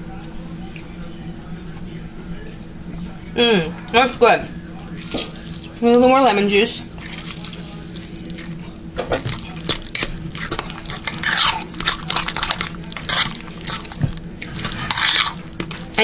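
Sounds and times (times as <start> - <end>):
fork scraping bowl: 9.2 - 16.0.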